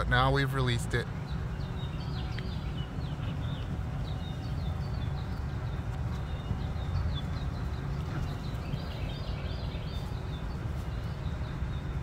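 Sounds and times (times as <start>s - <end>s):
low steady rumble: 0.0s - 12.0s.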